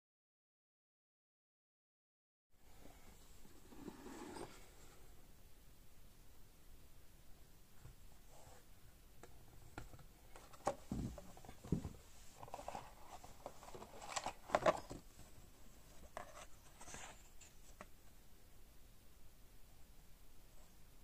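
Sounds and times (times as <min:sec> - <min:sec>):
cardboard box rustles and scrapes: 0:16.0 - 0:17.6.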